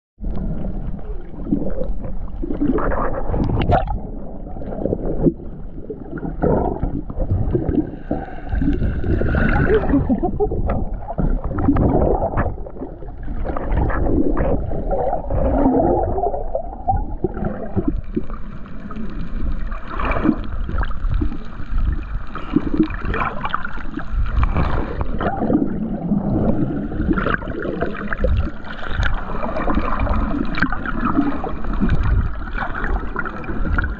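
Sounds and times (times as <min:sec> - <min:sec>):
water churning underwater: 0:00.2 - 0:33.9.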